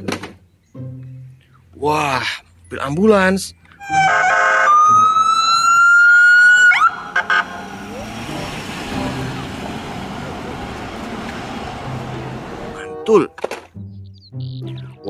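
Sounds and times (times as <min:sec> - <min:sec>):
street traffic noise: 0:00.0 - 0:14.1
ambulance siren wailing: 0:03.8 - 0:13.0.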